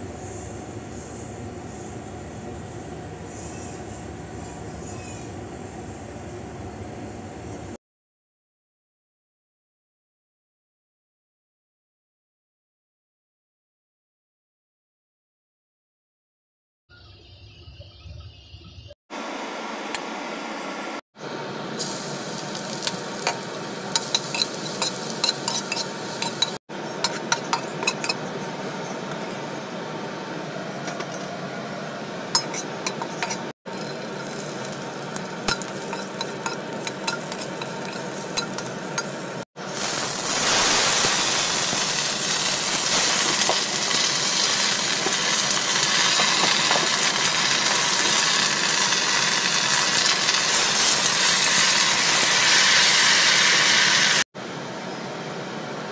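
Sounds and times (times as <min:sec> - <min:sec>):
oil sizzling in a wok: 0:21.2 - 0:29.4, 0:32.4 - 0:54.2
spatula scraping a pan: 0:22.6 - 0:28.2, 0:32.4 - 0:39.4.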